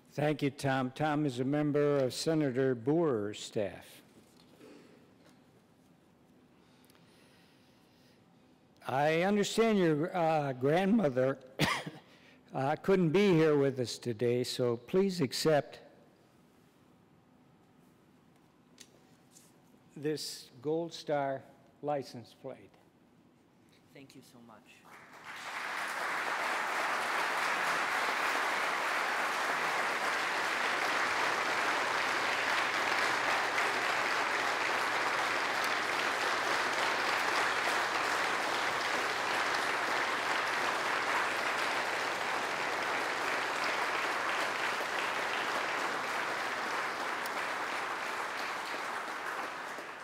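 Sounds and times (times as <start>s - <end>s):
crowd applauding: 24.9s - 50.0s.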